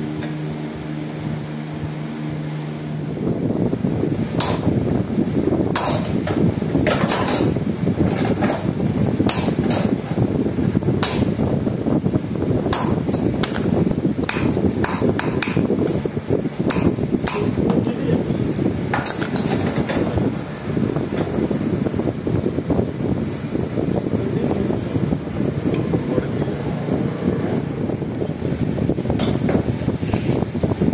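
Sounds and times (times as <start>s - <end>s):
low background rumble: 0.0s - 30.9s
hammer striking chisel on metal: 4.4s - 4.9s, 5.8s - 7.6s, 9.3s - 10.0s, 11.0s - 11.5s, 12.7s - 16.0s, 16.7s - 17.8s, 18.9s - 19.8s.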